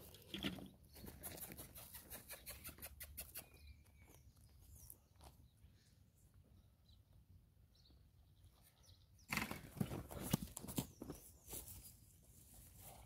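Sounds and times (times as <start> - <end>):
footsteps on dry grass: 9.8 - 13.0.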